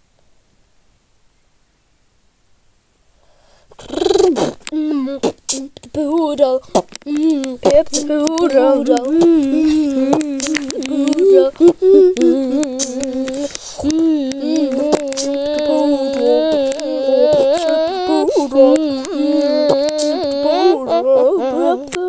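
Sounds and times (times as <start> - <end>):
sharp clicking percussion: 6.7 - 17.8.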